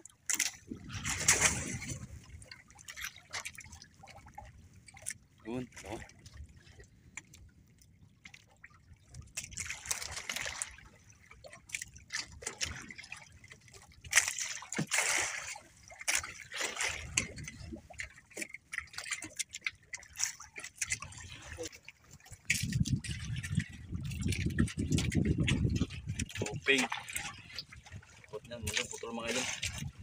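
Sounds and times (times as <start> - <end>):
water lapping against boat hull: 0.0 - 30.0
sharp water slap: 0.3 - 1.9.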